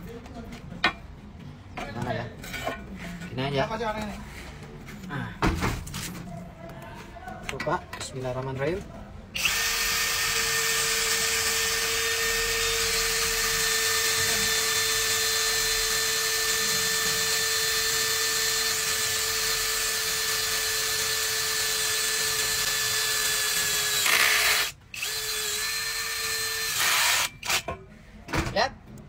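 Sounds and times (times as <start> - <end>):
cordless drill boring through metal: 9.4 - 27.7.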